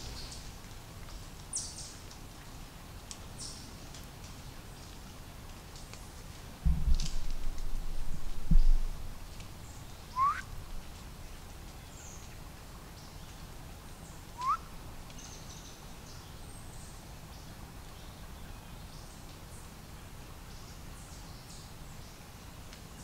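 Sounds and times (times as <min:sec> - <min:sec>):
dull low thump: 0:06.6 - 0:09.1
person whistling: 0:10.2 - 0:10.4, 0:14.4 - 0:14.6.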